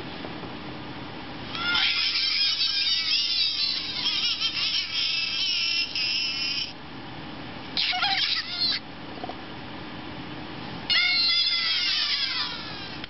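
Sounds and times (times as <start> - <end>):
toy bird chatter and squawks: 1.5 - 6.8, 7.8 - 8.8, 10.9 - 13.0.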